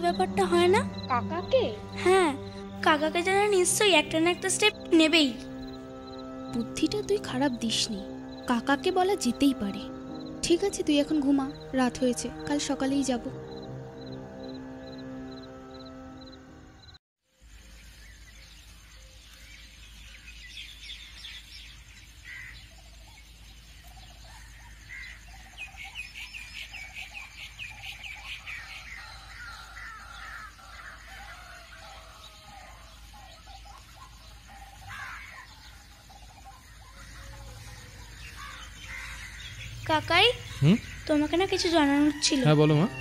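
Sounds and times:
birds chirping and calling: 19.3 - 43.0.

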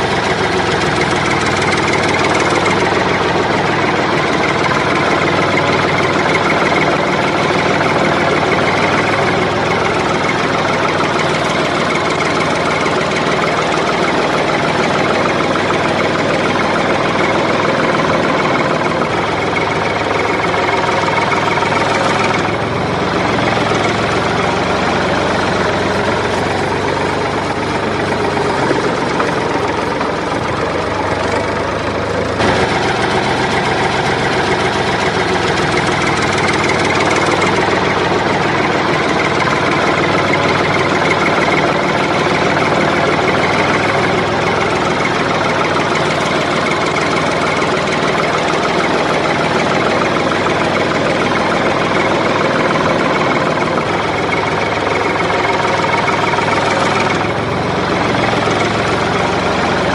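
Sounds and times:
small tractor motor running: 0.0 - 59.9.

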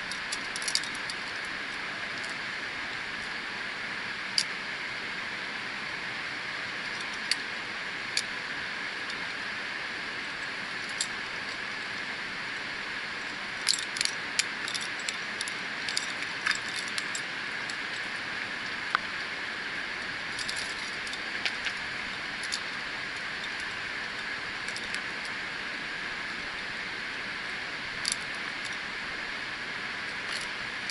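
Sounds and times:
metal carabiners clinking: 0.0 - 1.5, 13.3 - 18.8, 20.2 - 25.4, 27.9 - 28.9
steady background hiss: 0.0 - 30.9.

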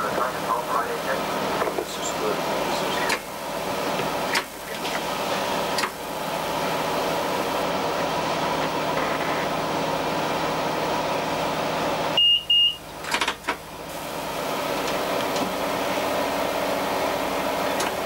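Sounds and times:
diesel engine idling hum: 0.0 - 18.0
short high beeps: 12.2 - 12.8.

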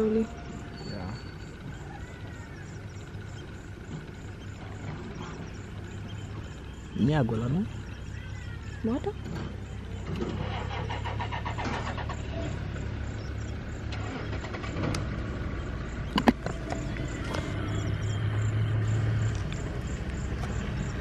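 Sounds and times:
vehicle engine humming: 0.0 - 21.0.

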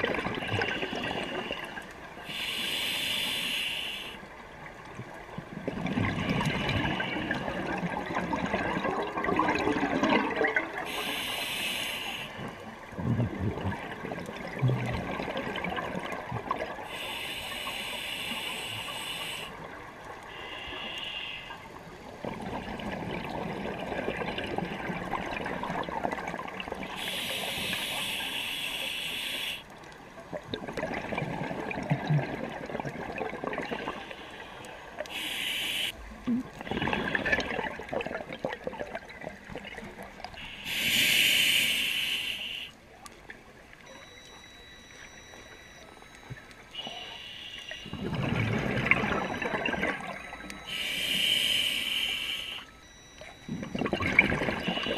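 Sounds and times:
hissing regulator inhalations: 2.3 - 4.2, 10.9 - 12.5, 16.8 - 19.7, 20.3 - 21.7, 26.9 - 29.7, 33.8 - 36.0, 40.3 - 42.8, 46.7 - 48.1, 50.5 - 53.3
rush of exhaled bubbles: 5.5 - 11.0, 12.8 - 16.9, 30.3 - 34.0, 36.3 - 40.0, 47.8 - 50.7, 52.9 - 54.9.

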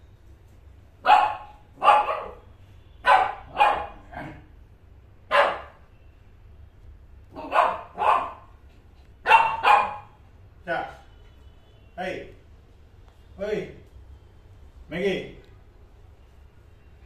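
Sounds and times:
small dog barking: 1.0 - 4.4, 5.3 - 5.8, 7.3 - 8.5, 9.2 - 10.2.

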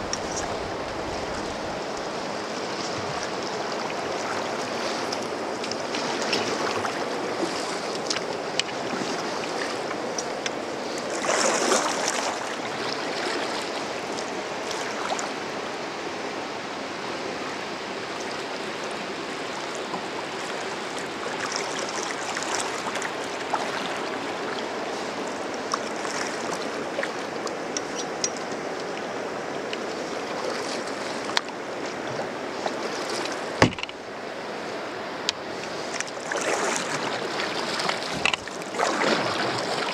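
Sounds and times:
river water rushing: 0.0 - 39.9
water lapping on hull: 0.0 - 39.9.

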